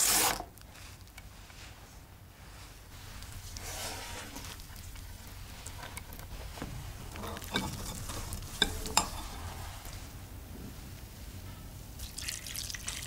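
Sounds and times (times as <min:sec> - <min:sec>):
water dripping: 0:12.0 - 0:13.0.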